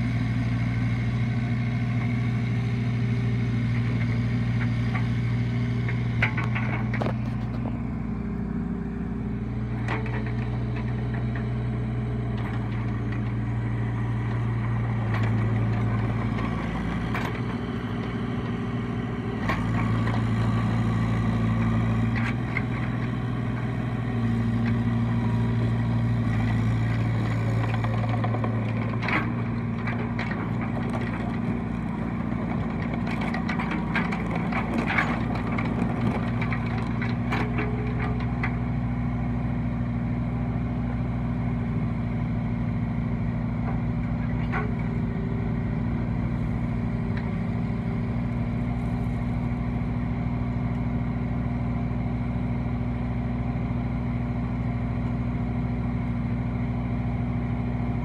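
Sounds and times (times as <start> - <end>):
excavator diesel engine running: 0.0 - 58.0
clanks and rattles: 5.9 - 7.7, 9.7 - 11.6, 26.3 - 38.7, 43.6 - 46.4.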